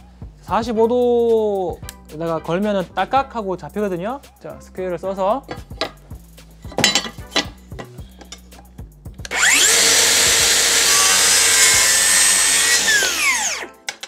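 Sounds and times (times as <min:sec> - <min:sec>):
circular saw cutting wood: 0:09.3 - 0:13.7.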